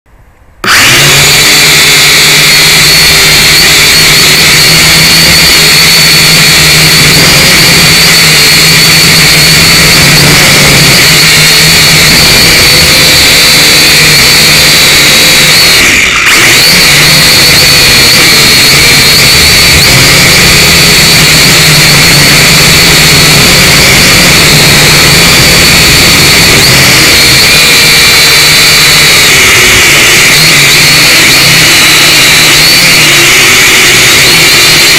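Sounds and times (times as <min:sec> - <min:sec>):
drone motors and propellers whining: 0:00.6 - 0:34.9.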